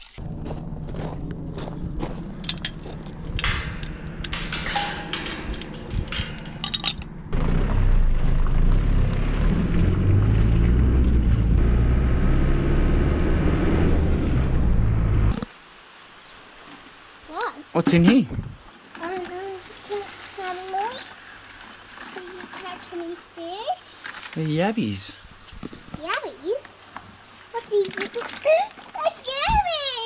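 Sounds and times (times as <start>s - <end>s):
vehicle rumbling on road: 0.2s - 15.5s
knocks and clinks: 1.9s - 7.4s.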